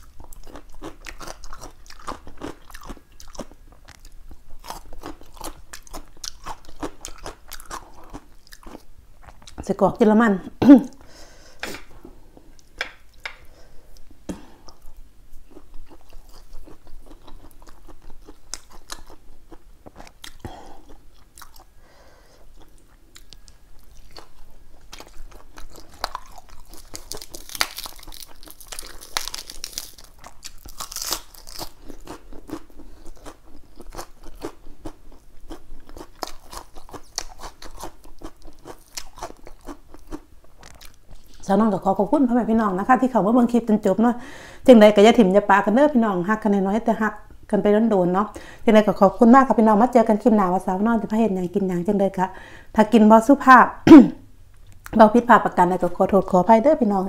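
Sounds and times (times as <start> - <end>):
person chewing crunchy food: 0.0 - 9.6, 11.6 - 41.5.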